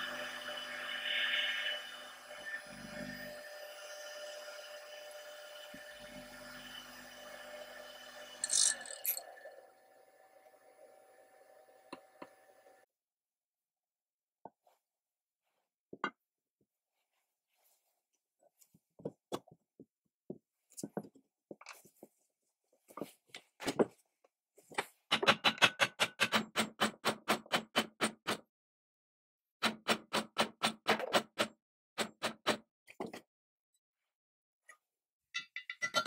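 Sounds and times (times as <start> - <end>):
metal parts being handled: 8.4 - 9.2, 35.4 - 36.0.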